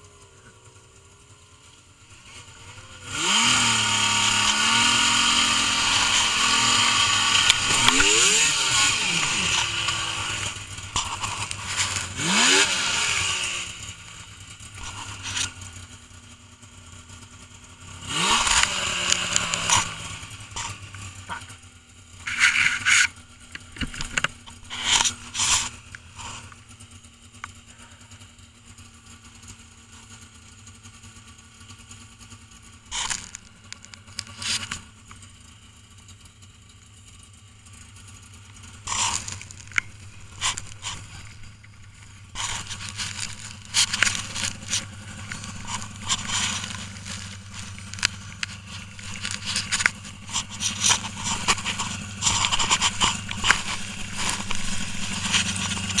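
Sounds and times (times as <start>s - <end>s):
snowmobile engine idling: 0.0s - 56.0s
crunching and scraping of snow: 1.2s - 26.9s, 32.6s - 36.2s, 37.0s - 56.0s.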